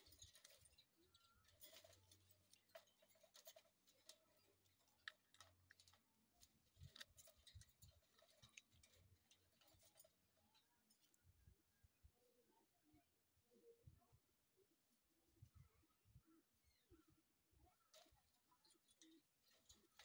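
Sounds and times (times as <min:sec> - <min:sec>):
parakeets clicking on cage bars: 0:00.0 - 0:10.2.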